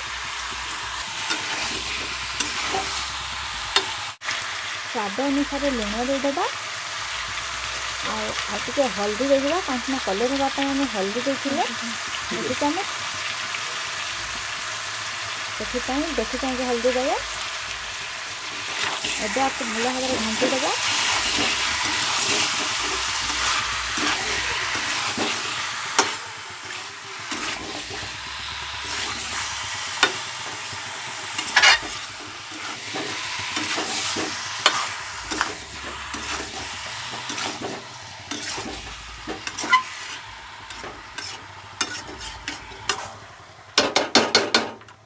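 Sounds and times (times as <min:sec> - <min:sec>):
food sizzling in oil: 0:00.0 - 0:43.9
metal spatula scraping pan: 0:31.4 - 0:43.2.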